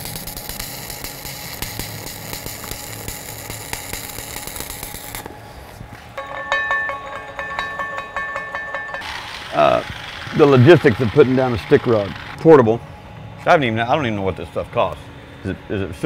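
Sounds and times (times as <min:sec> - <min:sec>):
welding arc crackling: 0:00.0 - 0:06.5, 0:09.0 - 0:12.4.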